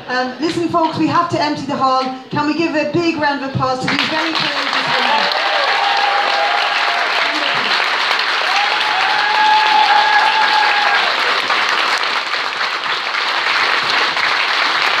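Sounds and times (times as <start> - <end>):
audience applauding: 3.9 - 15.0.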